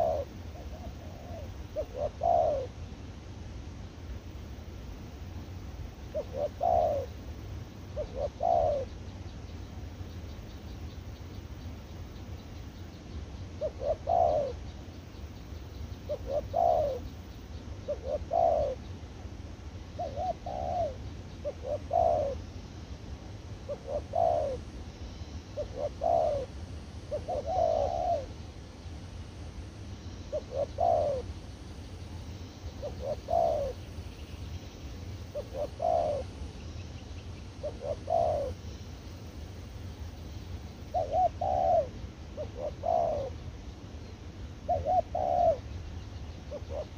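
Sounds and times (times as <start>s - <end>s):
dove cooing: 0.0s - 2.8s, 6.0s - 7.2s, 7.9s - 9.0s, 13.6s - 14.7s, 16.1s - 17.2s, 17.8s - 18.9s, 19.9s - 22.5s, 23.6s - 24.7s, 25.6s - 26.5s, 27.1s - 28.4s, 30.3s - 31.3s, 32.7s - 33.9s, 35.3s - 36.4s, 37.5s - 38.7s, 40.8s - 43.4s, 44.6s - 45.7s, 46.5s - 46.9s
low steady hum: 0.0s - 46.9s.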